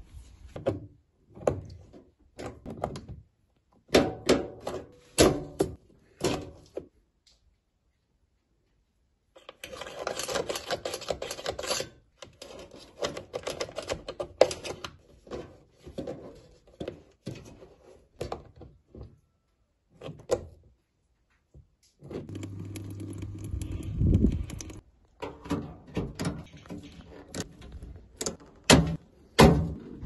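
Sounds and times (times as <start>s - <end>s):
clicking and scraping metal on plastic: 9.4s - 18.4s
water running with low hum: 22.3s - 24.8s.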